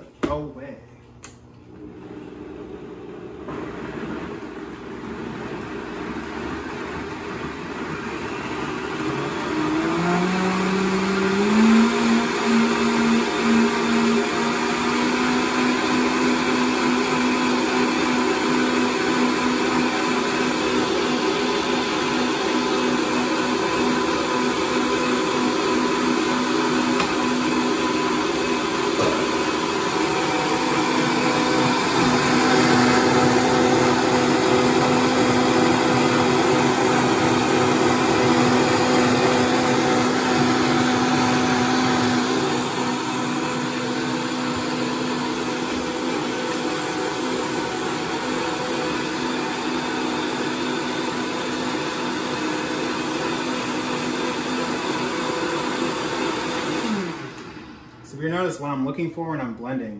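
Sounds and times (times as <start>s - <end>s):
blender running: 1.4s - 58.5s.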